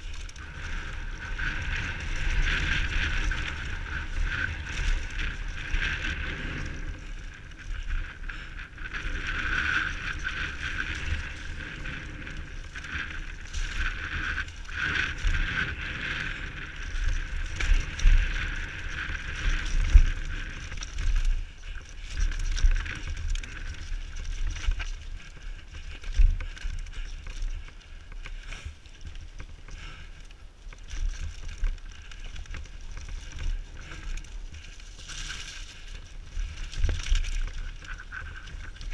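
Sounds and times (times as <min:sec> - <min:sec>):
mountain bike rattling: 0:00.0 - 0:38.9
wheels knocking on rocks: 0:00.0 - 0:38.9
wind on microphone: 0:00.0 - 0:38.9.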